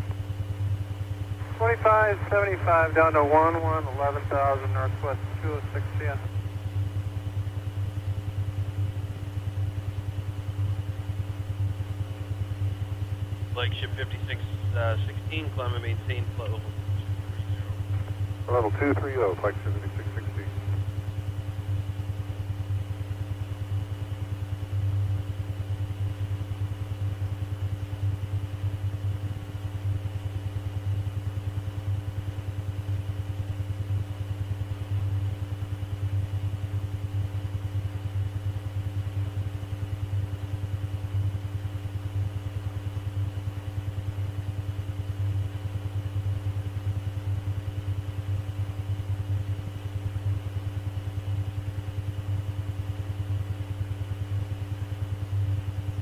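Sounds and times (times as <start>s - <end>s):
low electrical hum: 0.0s - 56.0s.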